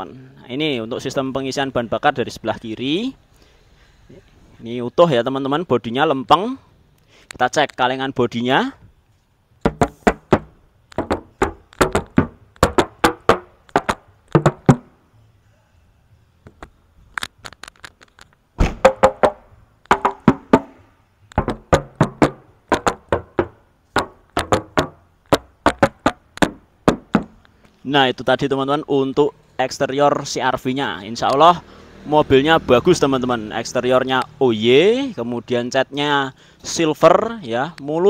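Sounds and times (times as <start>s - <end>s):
knuckles knocking on car panels: 9.7s - 14.9s, 18.6s - 27.4s.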